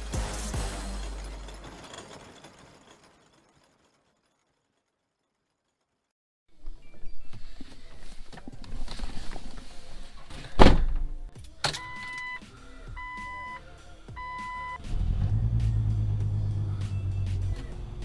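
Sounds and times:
car engine starting and running: 0:00.0 - 0:04.4, 0:11.7 - 0:18.0
dashboard warning chime beeping: 0:11.7 - 0:14.8.

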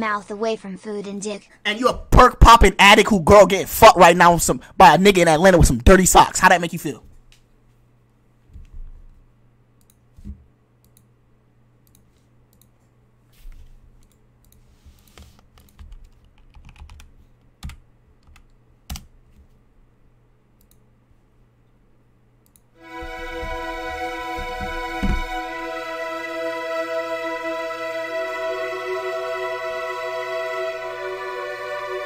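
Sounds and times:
computer keyboard clicks: 0:14.0 - 0:19.1
music: 0:22.8 - 0:32.0.

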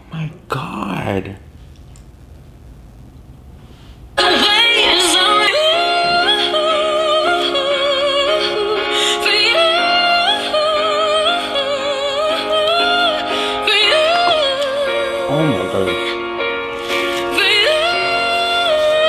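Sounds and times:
sustained accompanying chords: 0:04.2 - 0:16.7
woman singing soul ballad: 0:04.2 - 0:19.0.

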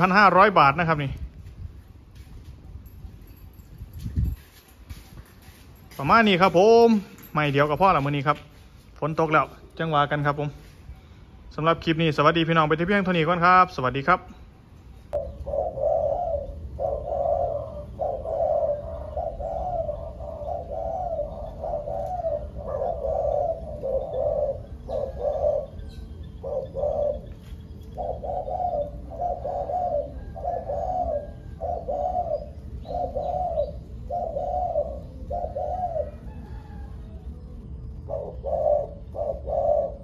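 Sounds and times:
doves cooing: 0:14.9 - 0:40.0.

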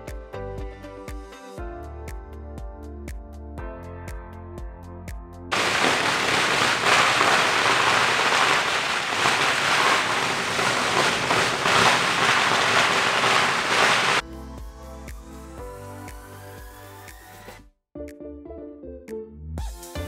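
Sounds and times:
firecrackers crackling: 0:05.5 - 0:14.2.

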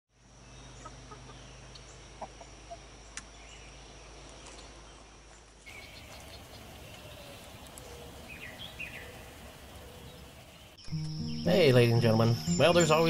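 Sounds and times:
low outdoor hum: 0:00.1 - 0:13.0
bird chirps: 0:00.4 - 0:13.0
chickens clucking: 0:00.8 - 0:02.9
faint high steady tone: 0:10.9 - 0:13.0.

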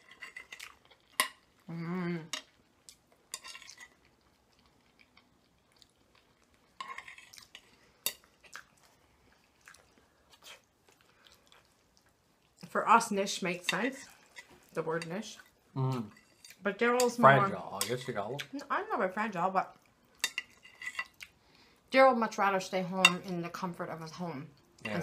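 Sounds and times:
chewing spaghetti: 0:00.0 - 0:12.7
person humming: 0:01.7 - 0:02.3, 0:15.8 - 0:16.1
forks scraping on plates: 0:06.8 - 0:08.2, 0:20.2 - 0:21.2.

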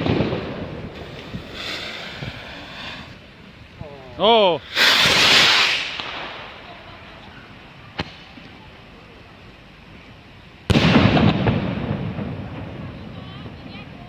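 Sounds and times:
firework launch blast: 0:00.0 - 0:03.3, 0:04.6 - 0:07.0, 0:07.6 - 0:08.6, 0:10.6 - 0:14.0
firework shell bursting: 0:00.0 - 0:03.3, 0:04.6 - 0:07.0, 0:07.6 - 0:08.5, 0:10.6 - 0:13.6
sharp crack: 0:04.6 - 0:06.8, 0:07.9 - 0:08.6, 0:10.7 - 0:13.3.

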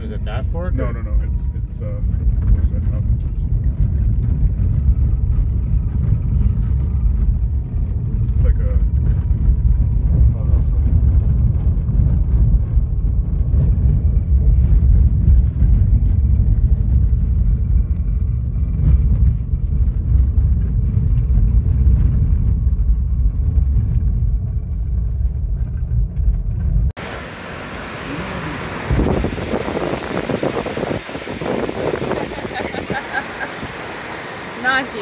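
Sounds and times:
tyres on gravel road: 0:00.0 - 0:35.0
wind on microphone: 0:01.6 - 0:35.0
rushing river water: 0:27.0 - 0:35.0.

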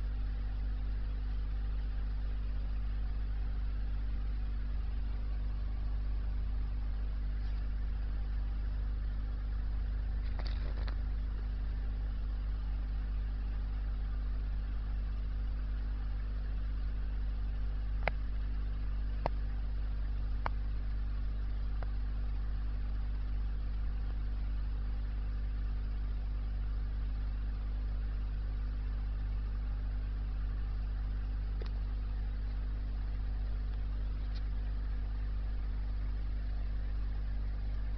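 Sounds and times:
aquarium equipment humming: 0:00.0 - 0:37.9
faint sharp clicks: 0:31.6 - 0:31.8.

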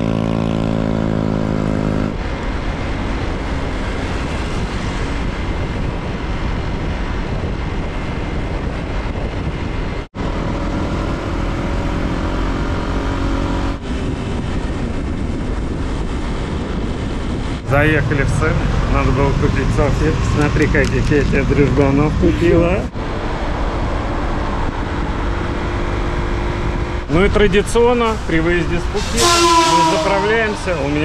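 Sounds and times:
wind and road noise: 0:00.0 - 0:31.0
motorbike engine humming: 0:07.4 - 0:31.0.

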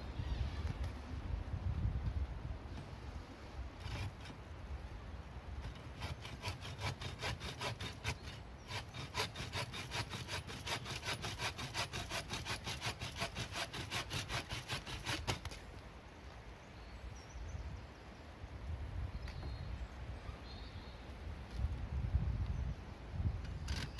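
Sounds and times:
hand saw cutting wood: 0:03.8 - 0:04.4, 0:05.6 - 0:15.6.

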